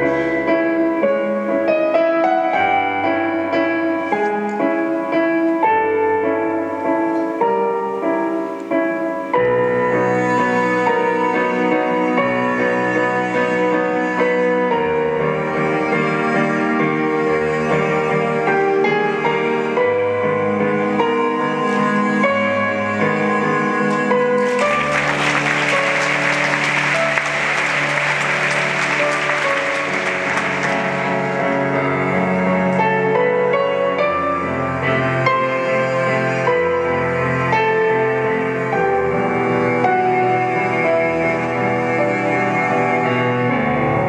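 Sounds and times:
instrumental music with held notes: 0.0 - 44.0
audience applauding: 23.9 - 31.8.

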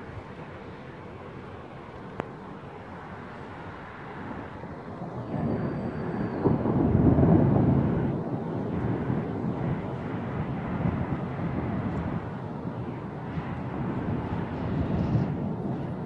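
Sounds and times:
rolling thunder: 4.2 - 16.0
sharp thunder crack: 5.4 - 12.3.

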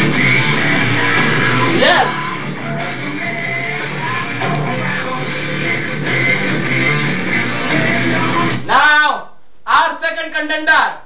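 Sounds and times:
rock music with guitar: 0.0 - 8.7.

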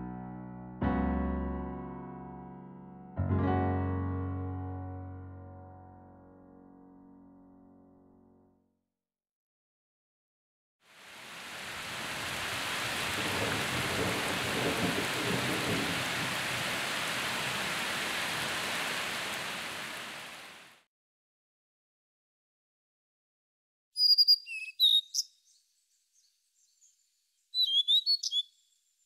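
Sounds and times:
rain on gravel and puddles: 10.9 - 20.8.

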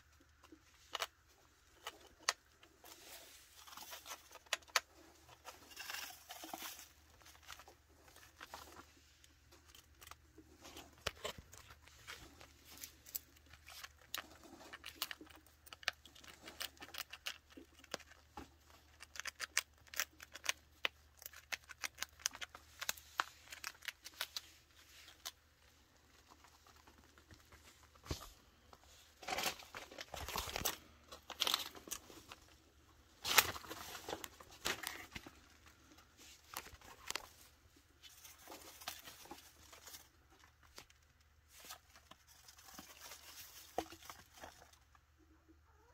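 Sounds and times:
chinchillas rustling and scratching: 0.0 - 45.9
crunching cereal nibbling: 10.9 - 25.4.

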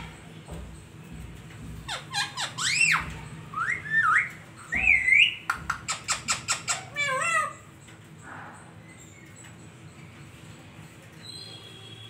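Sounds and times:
parakeet whistling and chirping: 1.9 - 7.4.

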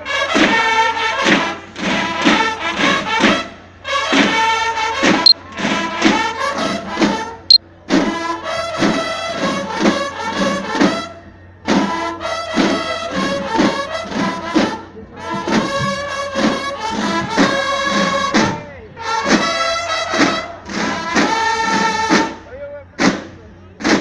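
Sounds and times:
brass band playing: 11.7 - 18.4, 19.0 - 22.4.

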